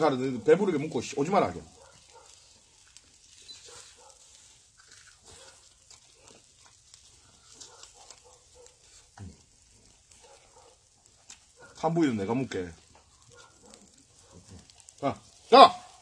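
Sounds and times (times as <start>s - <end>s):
small irregular clicks: 1.7s - 11.9s, 12.8s - 15.0s
wet chewing and lip-smacking: 2.0s - 9.1s.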